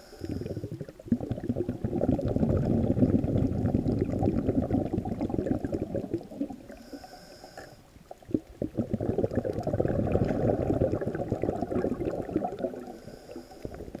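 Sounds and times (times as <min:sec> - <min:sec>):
muffled underwater air bubbling: 0:00.0 - 0:14.0.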